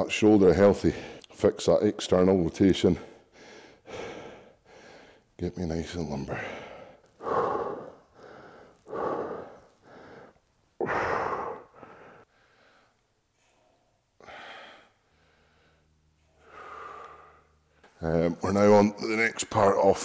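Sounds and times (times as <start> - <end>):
man breathing hard: 3.1 - 5.3, 6.3 - 18.0.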